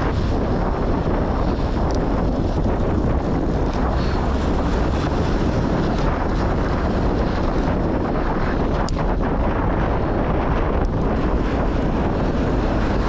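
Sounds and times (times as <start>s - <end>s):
heavy wind on microphone: 0.0s - 13.0s.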